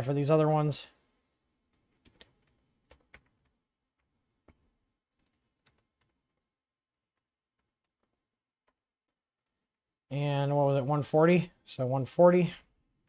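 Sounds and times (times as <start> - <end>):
computer keyboard keystrokes: 1.7 - 3.5.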